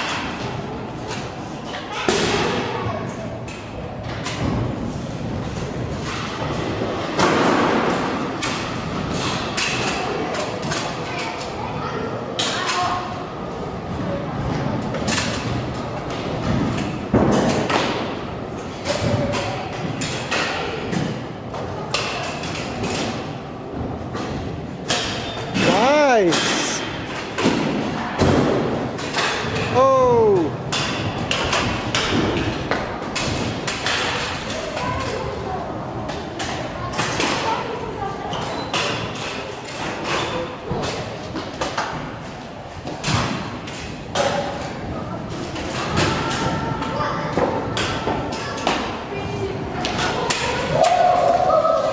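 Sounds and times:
scooters clattering on concrete: 30.6s - 51.9s.

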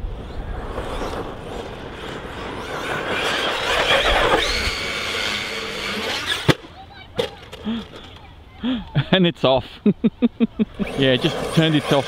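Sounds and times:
high electric motor whine: 0.0s - 6.6s
rc car tyre and drivetrain noise: 0.0s - 6.7s, 10.7s - 12.0s.

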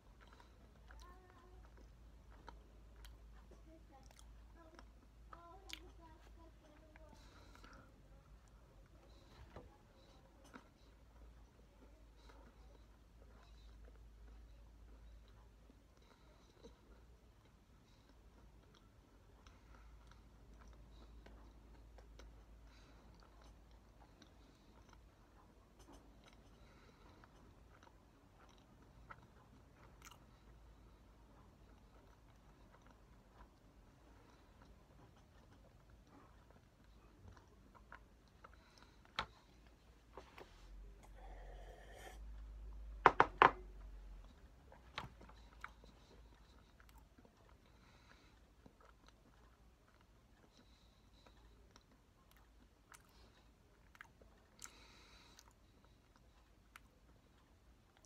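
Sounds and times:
chewing close-up: 0.0s - 43.0s, 43.6s - 58.0s
sharp clicks and taps: 43.0s - 43.7s.

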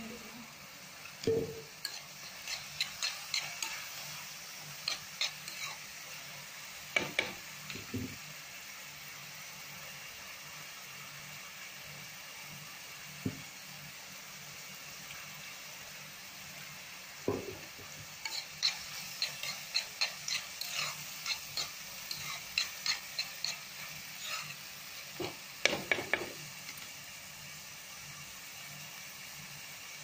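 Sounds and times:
onions sizzling in oil: 0.0s - 30.0s
spatula scraping and tapping pan: 1.0s - 5.9s, 6.9s - 8.2s, 17.2s - 26.9s.

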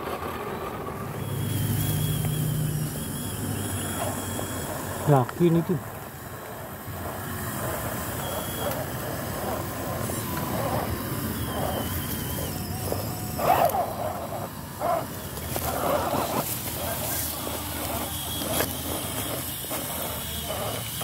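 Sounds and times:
rc car electric motor under load: 0.0s - 21.0s
tyres scrabbling on loose soil: 7.6s - 21.0s.

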